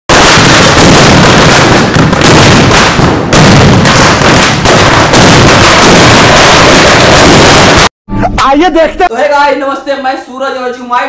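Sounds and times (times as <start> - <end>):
firecrackers banging: 0.1 - 7.9.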